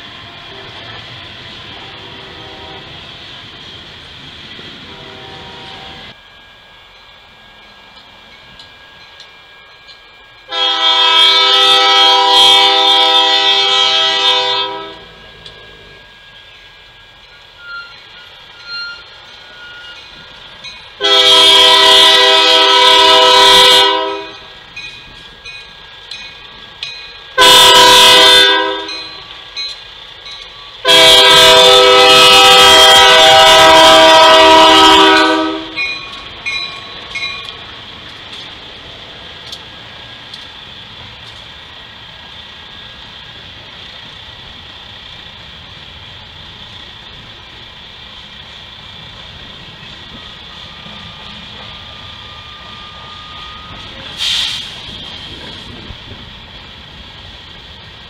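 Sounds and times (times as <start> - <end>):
freight train rolling past: 0.0 - 58.0
locomotive air horn blasts: 1.6 - 3.0, 4.8 - 6.1, 10.5 - 16.1, 21.0 - 24.5, 27.4 - 29.2, 30.8 - 35.9.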